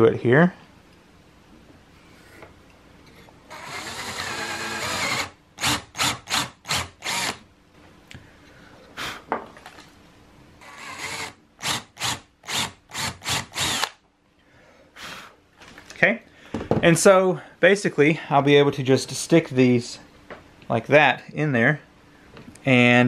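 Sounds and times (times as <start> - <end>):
power drill boring into wood: 3.5 - 7.4, 10.6 - 14.0.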